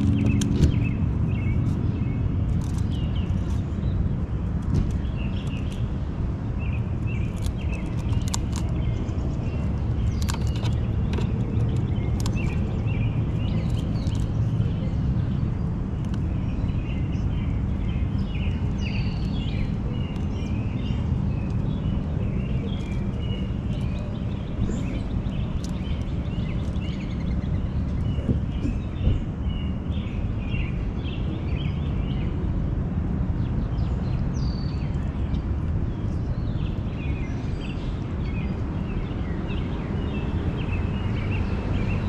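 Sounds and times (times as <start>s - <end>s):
birds chirping and calling: 0.0s - 32.4s
steady low rumble: 0.0s - 42.0s.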